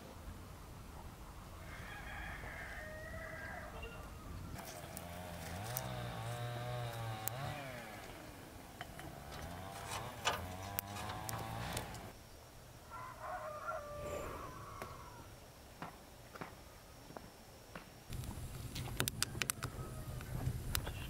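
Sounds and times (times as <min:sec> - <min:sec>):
rooster crowing: 0:01.6 - 0:04.6, 0:12.8 - 0:15.4, 0:19.2 - 0:20.4
kindling crackling in wood stove: 0:04.6 - 0:08.1, 0:08.8 - 0:12.2.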